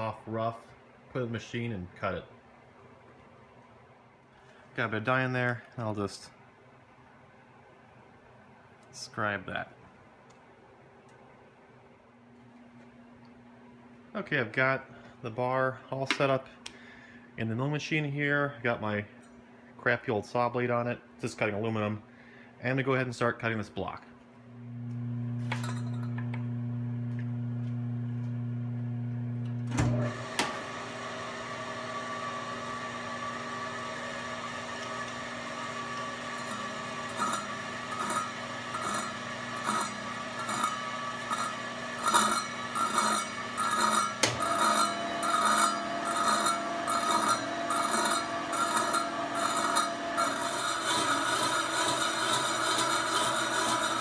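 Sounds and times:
motor hum: 24.5 - 54.0
saw blade scraping through metal: 35.8 - 54.0.

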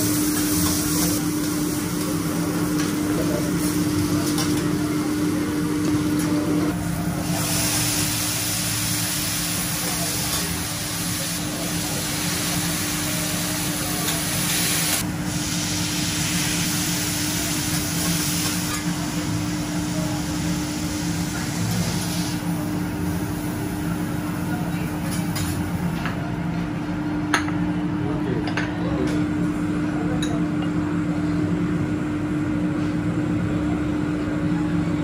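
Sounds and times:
vegetables sizzling on a griddle: 0.0 - 4.4, 7.2 - 25.8.

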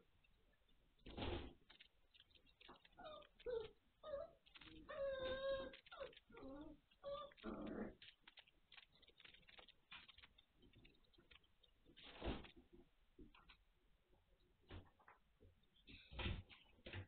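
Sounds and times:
puppies whining: 2.6 - 8.5.

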